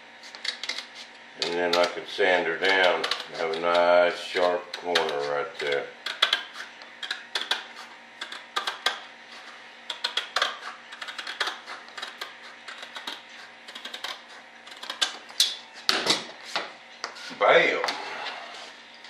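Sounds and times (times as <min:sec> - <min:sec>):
cutter snipping: 0:02.6 - 0:07.6.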